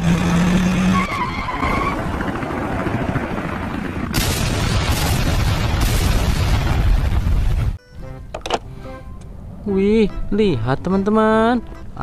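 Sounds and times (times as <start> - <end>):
rumbling vehicle engine: 0.0 - 4.3
loud explosion blast: 4.1 - 7.8.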